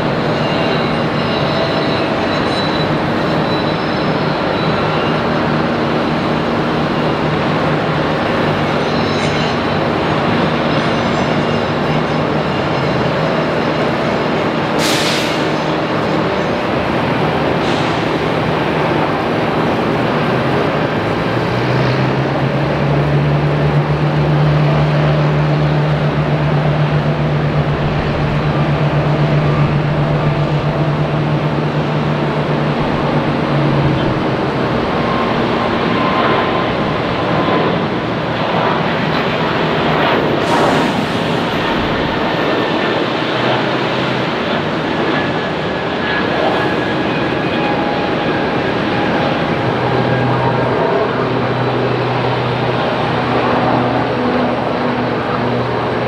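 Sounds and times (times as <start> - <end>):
jet engines running: 0.0 - 56.0.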